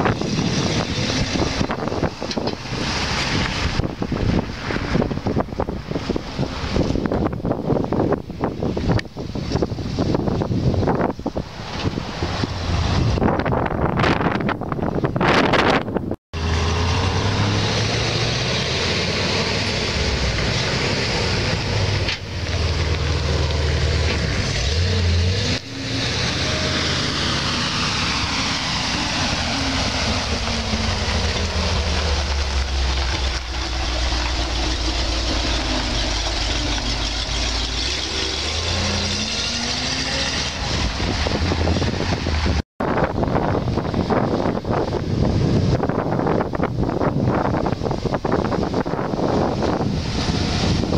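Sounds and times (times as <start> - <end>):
truck engine revving: 0.0 - 7.2, 16.4 - 42.6.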